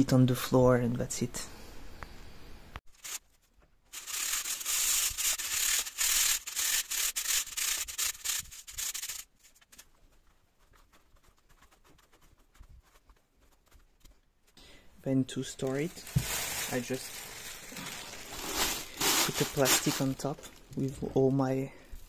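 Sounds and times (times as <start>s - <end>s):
sand rubbed through wire sieve: 2.9s - 3.2s, 3.9s - 9.8s, 17.7s - 20.4s.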